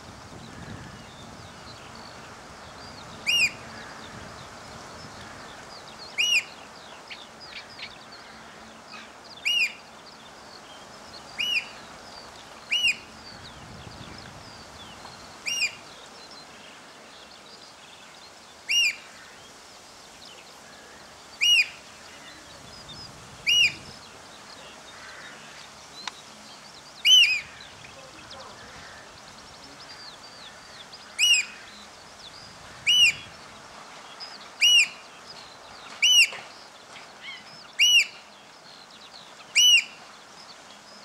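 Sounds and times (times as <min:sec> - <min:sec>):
oystercatchers piping calls: 0:03.2 - 0:03.9, 0:06.2 - 0:06.6, 0:09.0 - 0:09.8, 0:11.4 - 0:11.8, 0:12.7 - 0:13.1, 0:15.4 - 0:15.8, 0:18.7 - 0:19.0, 0:21.4 - 0:21.8, 0:23.5 - 0:23.9, 0:27.0 - 0:33.5, 0:34.6 - 0:35.0, 0:36.0 - 0:36.5, 0:37.2 - 0:38.3, 0:39.4 - 0:40.0.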